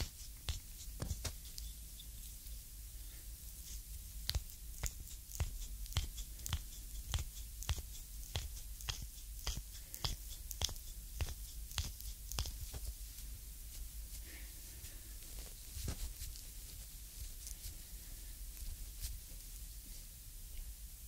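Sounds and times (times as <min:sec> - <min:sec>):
skin friction clicks: 0:04.2 - 0:12.8.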